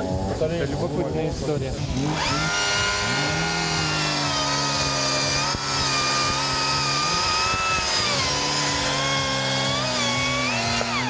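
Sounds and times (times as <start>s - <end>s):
electric chainsaw cutting log: 1.8s - 11.0s.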